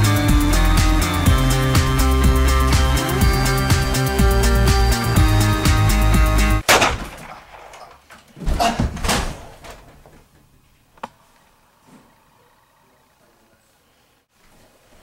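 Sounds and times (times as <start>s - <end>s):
music with a steady beat: 0.0s - 6.6s
sharp bang: 6.6s - 8.0s
crashing bangs: 6.6s - 10.3s.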